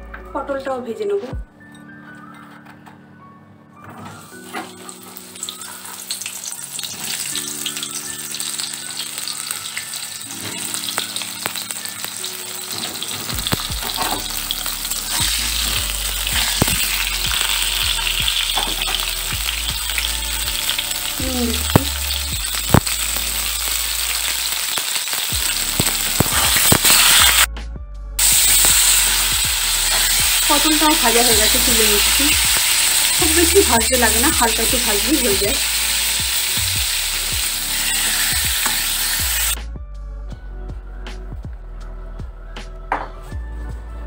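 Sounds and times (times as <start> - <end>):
vegetables sizzling in oil: 4.2 - 27.5, 28.2 - 39.6.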